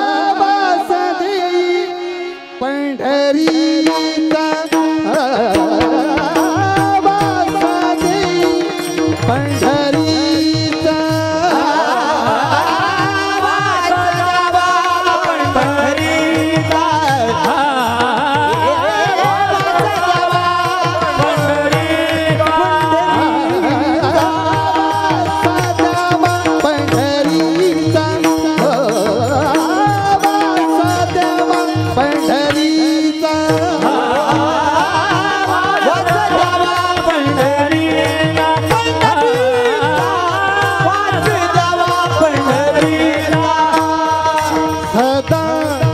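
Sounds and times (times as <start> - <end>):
men's chorus chanting: 11.5 - 26.8.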